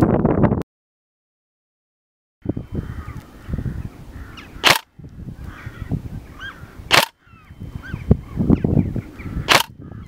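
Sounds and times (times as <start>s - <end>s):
birds calling: 2.4s - 10.0s
airsoft gun shot: 4.6s - 4.9s, 6.9s - 7.2s, 9.5s - 9.8s.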